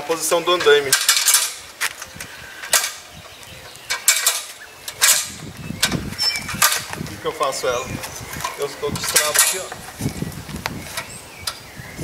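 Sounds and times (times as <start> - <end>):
ladder hinges clicking and clanking: 0.2 - 7.0, 8.4 - 10.0.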